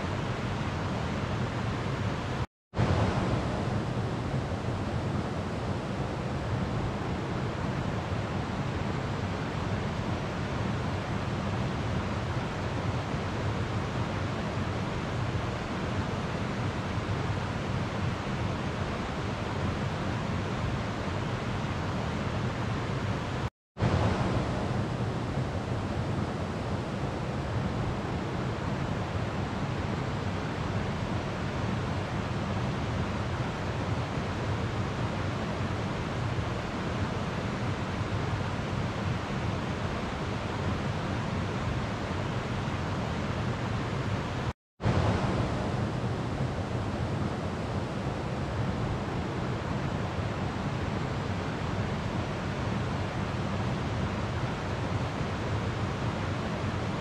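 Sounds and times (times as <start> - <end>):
river water flowing: 23.8 - 57.0.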